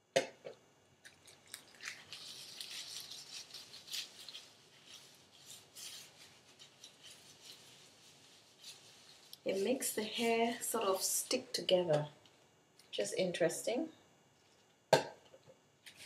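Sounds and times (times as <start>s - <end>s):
hands rubbing hair: 2.0s - 10.8s.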